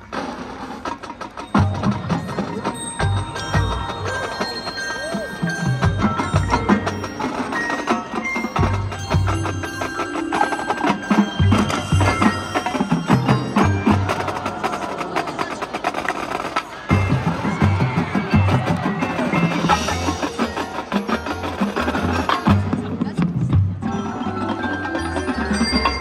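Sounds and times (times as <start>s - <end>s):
marching band playing: 0.0s - 26.0s
mallet percussion and bells: 0.6s - 26.0s.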